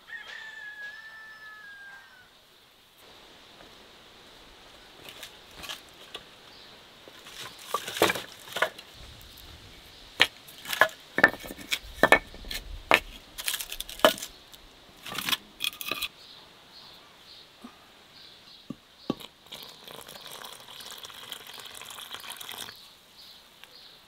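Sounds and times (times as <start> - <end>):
firewood logs knocking: 7.3 - 9.2, 10.2 - 14.3.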